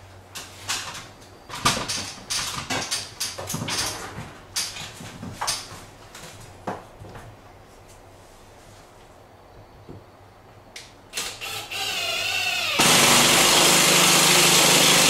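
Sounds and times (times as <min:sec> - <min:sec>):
person moving onto a stepladder: 0:01.8 - 0:08.0
scuffs and rustles: 0:04.0 - 0:09.3.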